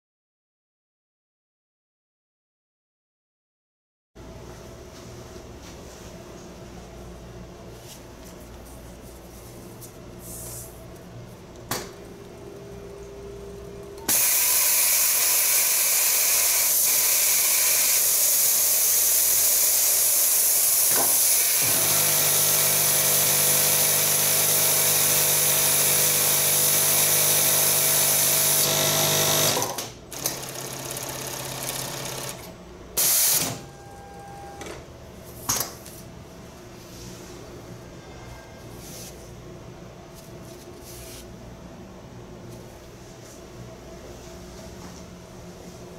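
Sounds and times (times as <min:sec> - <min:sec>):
sewing machine running: 0:14.0 - 0:33.6.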